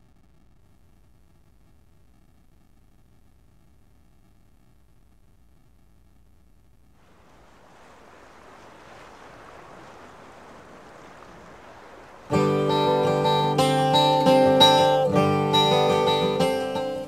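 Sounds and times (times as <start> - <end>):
acoustic guitar music: 12.3 - 17.0.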